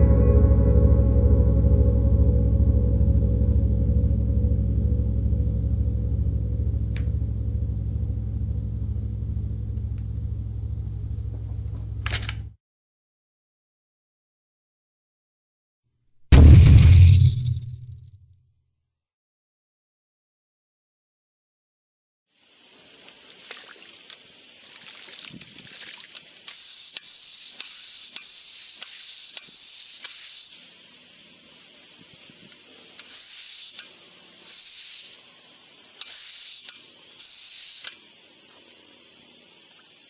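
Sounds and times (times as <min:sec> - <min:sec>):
faint trickling water: 0:22.5 - 0:26.5.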